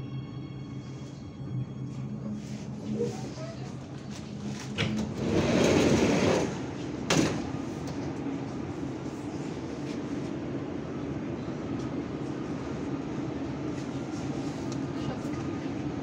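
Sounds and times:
sliding door rushing open: 4.6 - 7.7.

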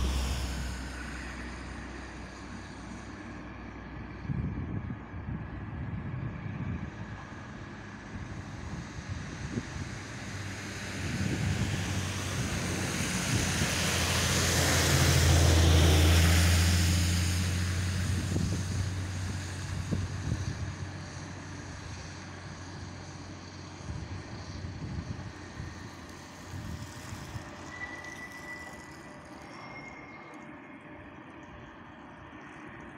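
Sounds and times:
broad rushing hiss: 0.0 - 3.9, 8.5 - 29.5
diesel locomotive engine drone: 0.0 - 32.9.

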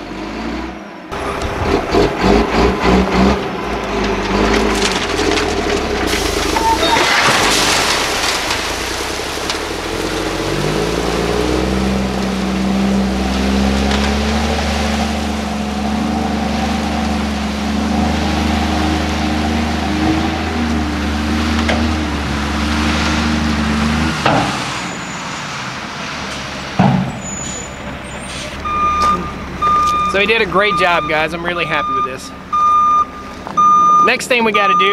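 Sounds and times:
diesel truck engine: 0.0 - 34.9
gravel pouring: 3.5 - 28.9.

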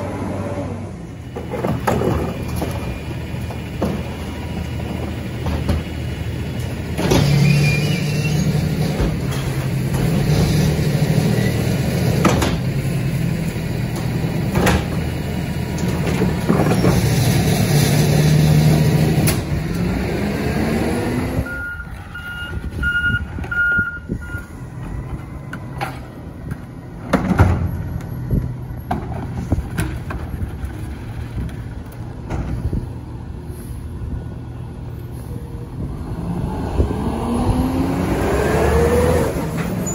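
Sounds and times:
garbage truck diesel engine: 0.0 - 39.9
truck backup alarm beeping: 21.4 - 25.5.

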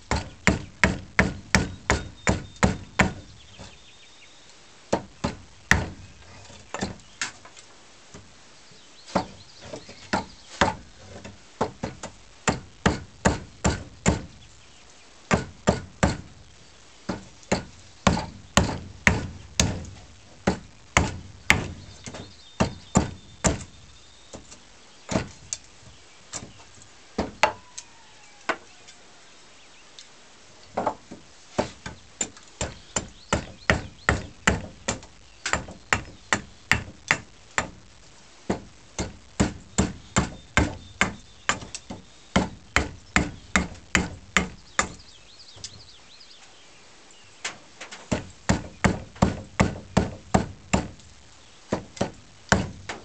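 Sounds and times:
axe chopping wood: 0.1 - 3.2, 4.9 - 6.0, 11.6 - 14.3, 15.3 - 16.3, 17.1 - 23.7, 31.6 - 37.8, 38.5 - 41.7, 42.4 - 45.0, 48.1 - 51.0, 51.7 - 53.0.

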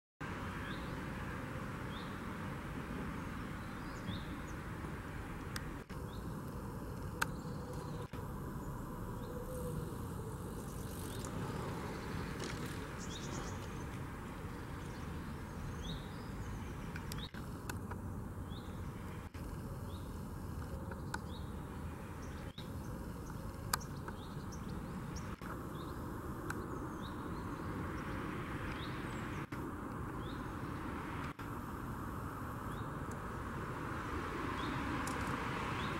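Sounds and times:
faint clicks: 16.8 - 18.0.

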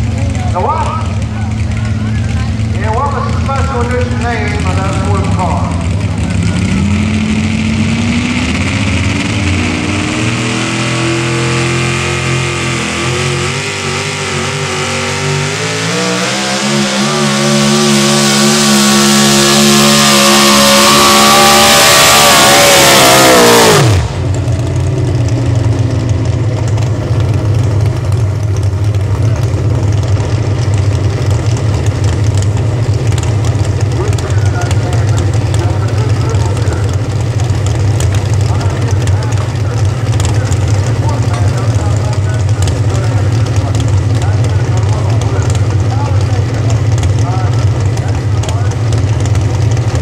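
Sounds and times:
truck engine at full throttle: 0.0 - 50.0
truck engine idling: 0.0 - 50.0.

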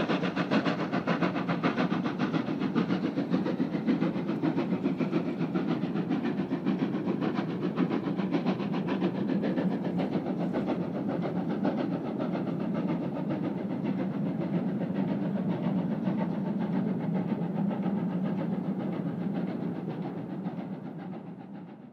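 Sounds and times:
steam train exhaust beats: 0.0 - 21.9
train rolling noise: 0.0 - 21.9.

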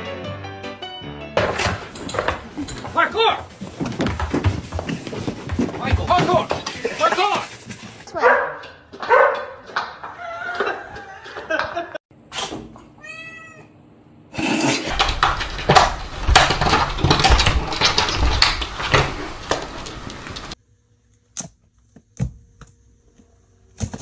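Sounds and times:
knocks thumps and scrabbling: 1.4 - 7.2, 14.9 - 20.6
cat meowing: 13.0 - 13.7.

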